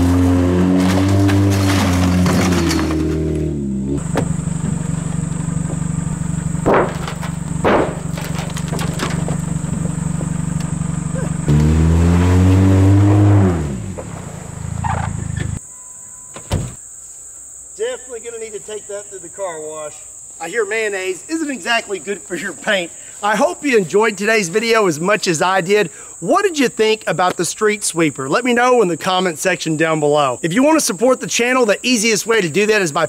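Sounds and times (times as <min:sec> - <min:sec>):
car engine revving: 0:00.0 - 0:15.6
sharp knocks: 0:06.6 - 0:10.4.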